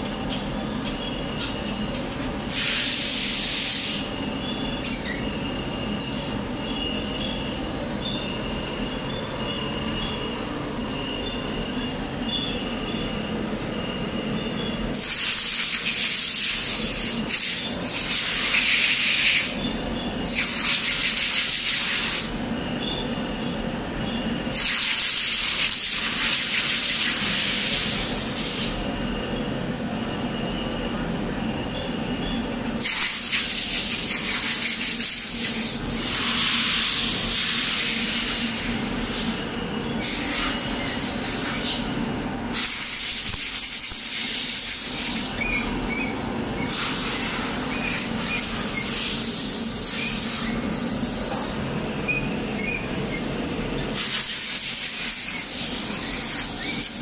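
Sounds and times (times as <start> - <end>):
grinding wheel hissing on metal: 46.6 - 53.2, 53.8 - 57.0.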